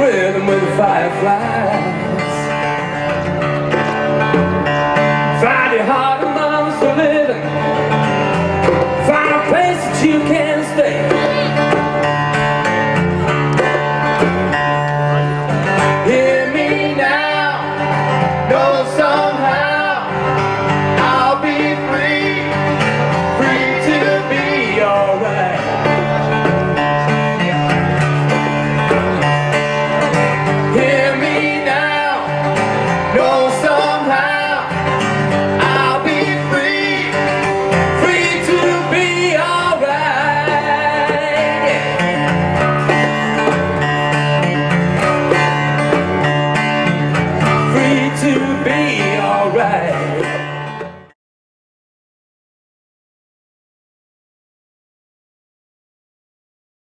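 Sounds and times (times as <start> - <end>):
man singing: 0.0 - 3.0, 5.2 - 8.1, 8.9 - 12.0, 15.2 - 43.0, 46.9 - 50.7
strummed acoustic guitar: 0.0 - 51.2
bongos: 3.2 - 17.0.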